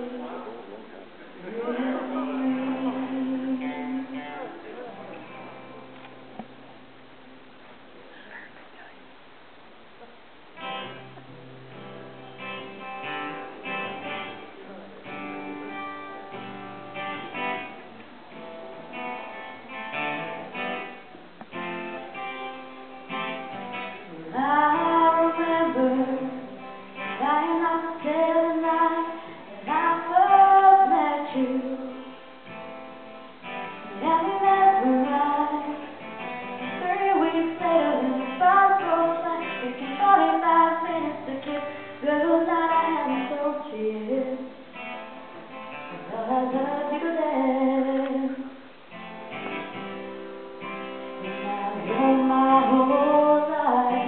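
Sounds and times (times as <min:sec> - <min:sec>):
woman singing: 0:01.4 - 0:04.5, 0:24.1 - 0:32.3, 0:33.7 - 0:44.6, 0:45.9 - 0:48.6, 0:51.2 - 0:54.0
acoustic guitar strumming: 0:10.6 - 0:48.3, 0:48.9 - 0:54.0.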